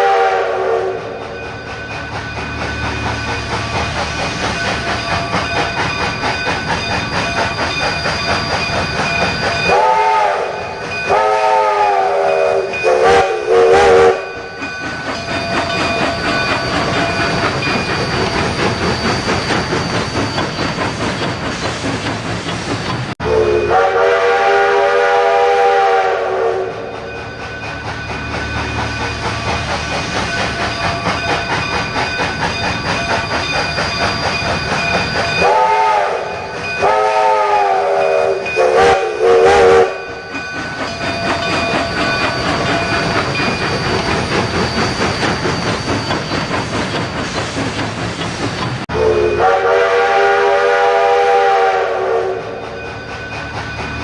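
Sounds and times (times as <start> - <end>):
electronic train whistle: 0.0 - 1.2, 9.7 - 14.4, 23.2 - 27.0, 35.4 - 40.1, 48.9 - 52.6
model train wheels clicking: 0.8 - 23.2, 24.4 - 48.9.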